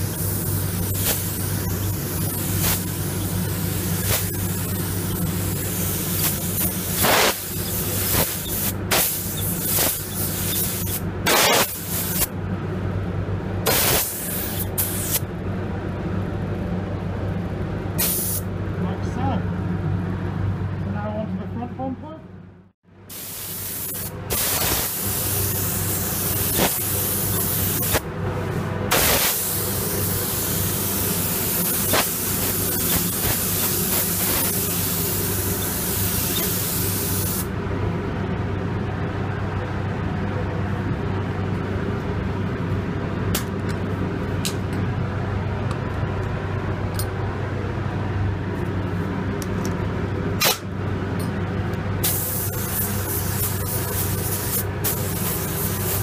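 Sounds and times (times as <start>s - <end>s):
paint spray gun hissing: 0.0s - 12.3s, 13.7s - 15.2s, 18.0s - 18.4s, 23.1s - 28.0s, 28.9s - 37.5s, 52.0s - 56.0s
steady low hum: 0.0s - 56.0s.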